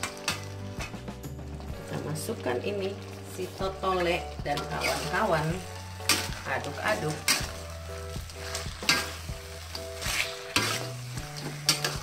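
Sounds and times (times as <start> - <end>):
sauce sizzling: 0.0 - 12.0
metal spatula scraping a wok: 4.5 - 12.0.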